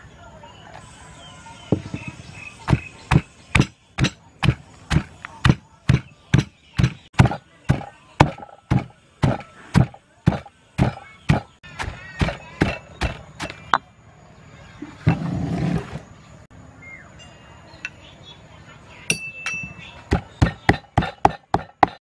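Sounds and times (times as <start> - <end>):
stone pestle pounding in mortar: 2.7 - 13.6, 20.1 - 22.0
rough noise: 14.8 - 16.3.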